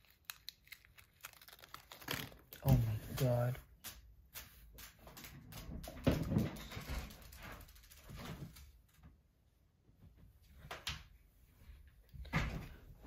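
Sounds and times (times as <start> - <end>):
plastic balls clicking and rattling: 3.1 - 8.9.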